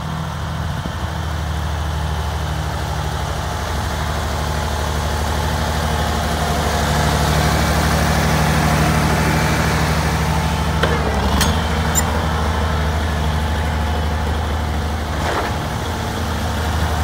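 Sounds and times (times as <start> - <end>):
tractor engine running: 0.0 - 17.0
tyres on gravel: 14.8 - 16.6.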